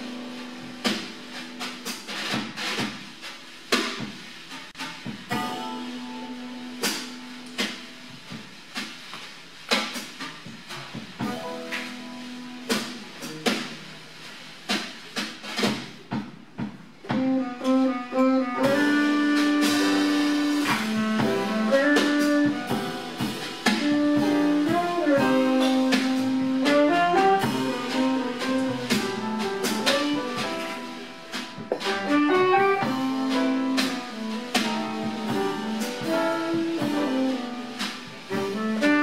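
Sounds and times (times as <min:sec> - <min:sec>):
drum kit: 0:00.0 - 0:39.0
piano: 0:00.0 - 0:39.0
tenor saxophone melody: 0:17.1 - 0:30.5, 0:31.9 - 0:39.0.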